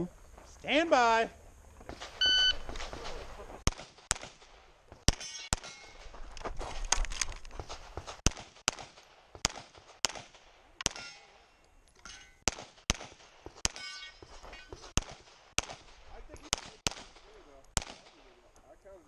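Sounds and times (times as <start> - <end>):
pistol shots: 1.9 - 5.9, 7.6 - 11.1, 12.4 - 18.4.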